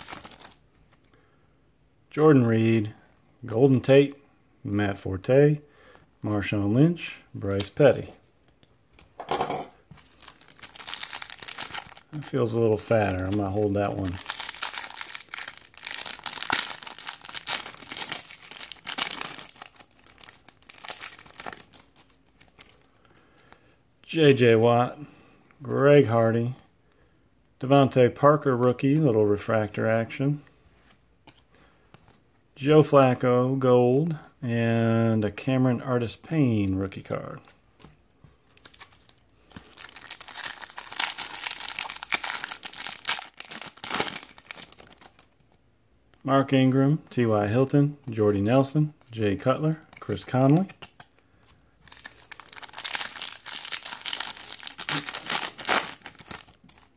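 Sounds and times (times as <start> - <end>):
plastic wrapper crinkling and tearing: 0.0 - 1.1, 9.9 - 22.9, 38.4 - 45.6, 51.8 - 56.9.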